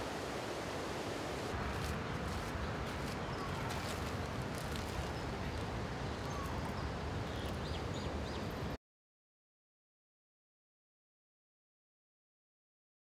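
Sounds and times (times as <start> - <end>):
water rushing: 0.0 - 1.6.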